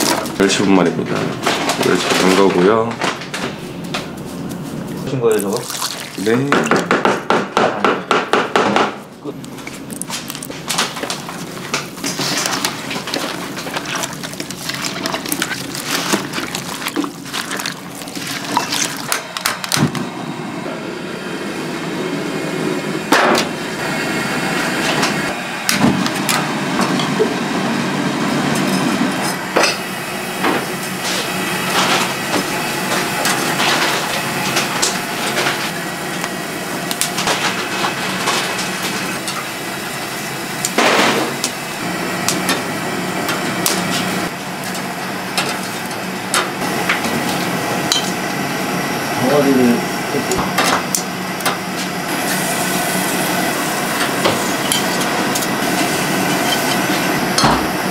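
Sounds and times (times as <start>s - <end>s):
gas burners rushing: 0.0s - 57.9s
wet squelching of food mixed by hand: 3.7s - 6.5s, 9.4s - 19.4s.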